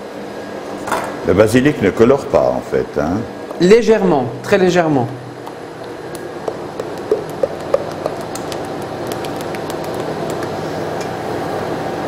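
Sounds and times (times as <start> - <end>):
steady background hum: 0.0 - 12.0
spatula stirring cream: 6.4 - 10.6.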